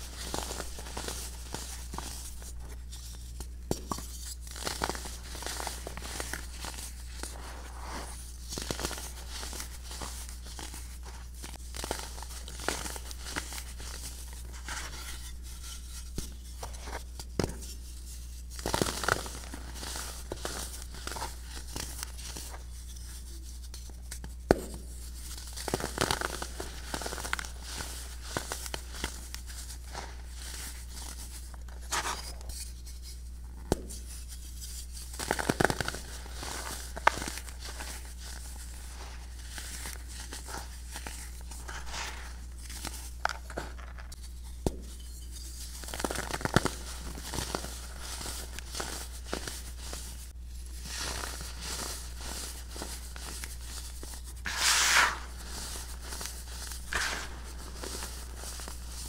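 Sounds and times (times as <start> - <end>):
powder crumbling: 0.0 - 15.2, 18.4 - 22.7, 24.6 - 32.4, 35.0 - 59.0
steady low hum: 0.0 - 59.0
baking soda blocks crunching: 35.1 - 44.2, 45.6 - 59.0.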